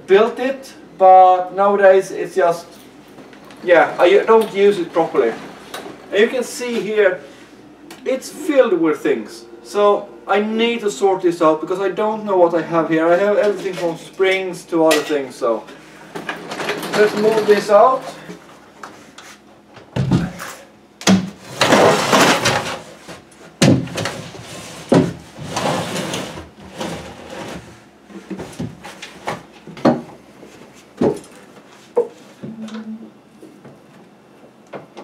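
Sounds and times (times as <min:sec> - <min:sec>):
cabinet scraping on concrete floor: 0:21.4 - 0:23.2, 0:23.9 - 0:29.3.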